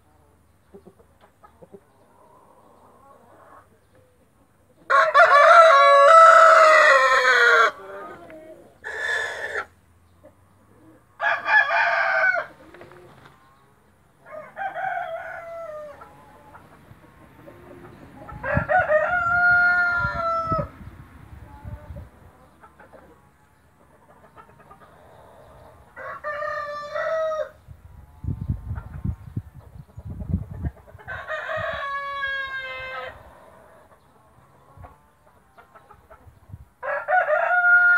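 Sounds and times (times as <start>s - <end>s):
rooster crowing: 4.9s - 8.1s, 11.2s - 12.6s, 14.2s - 16.0s, 18.4s - 20.7s, 26.0s - 27.6s, 31.1s - 33.2s, 36.8s - 37.9s.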